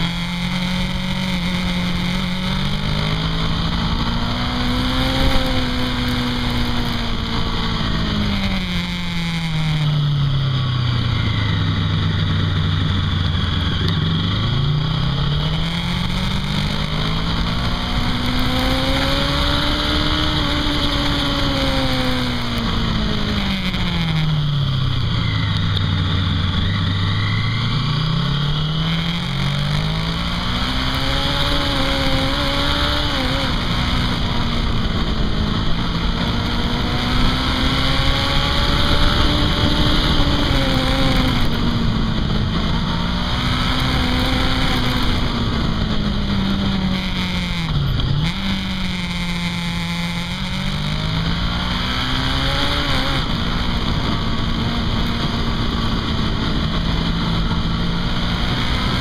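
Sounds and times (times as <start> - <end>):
motorcycle engine revving: 0.0 - 59.0
wind rush on microphone: 28.8 - 59.0.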